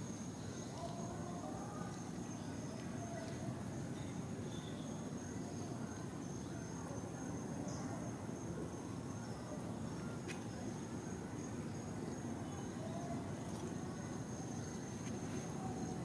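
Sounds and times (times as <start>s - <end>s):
faint click: 10.2s - 10.5s.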